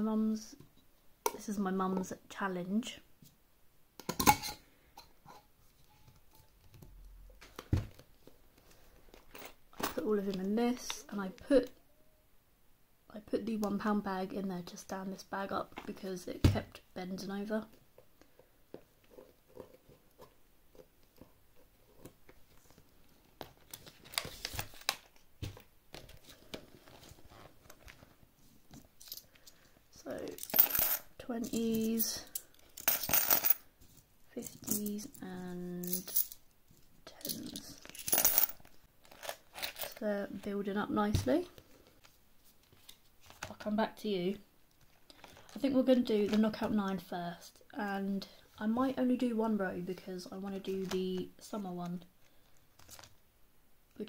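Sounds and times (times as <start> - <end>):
rustle of handling items: 17.8 - 30.7, 41.3 - 43.7, 50.5 - 53.2.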